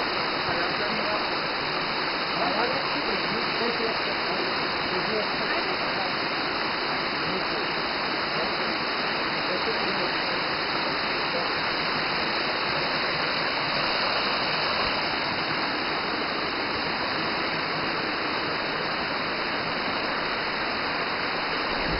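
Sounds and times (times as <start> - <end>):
waterfall rushing into pool: 0.0 - 21.9.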